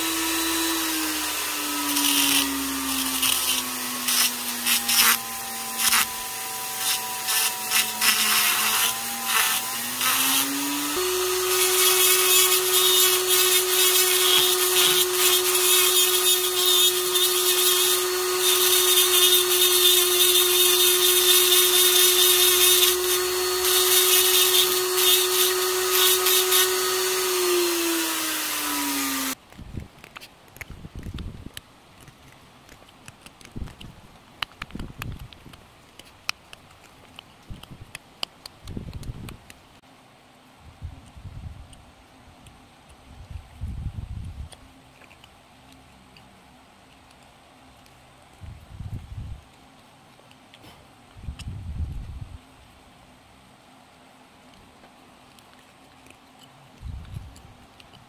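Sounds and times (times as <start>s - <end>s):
bit grinding wood: 0.0s - 29.4s
rotary tool motor whine: 0.0s - 29.4s.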